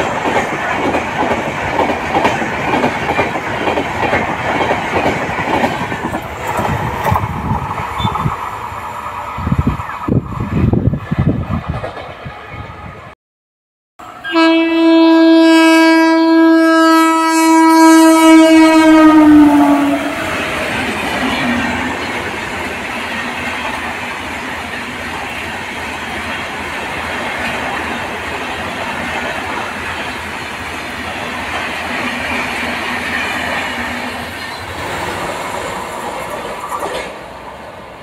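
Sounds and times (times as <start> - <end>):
train coaches rumbling over rails: 0.0 - 13.1, 17.3 - 38.0
locomotive horn blast: 14.0 - 20.4.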